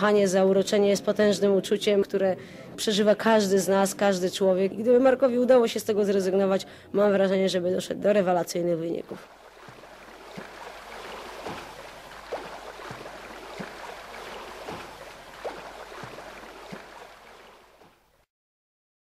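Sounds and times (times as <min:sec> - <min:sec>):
water sloshing and splashing: 0:08.9 - 0:18.2.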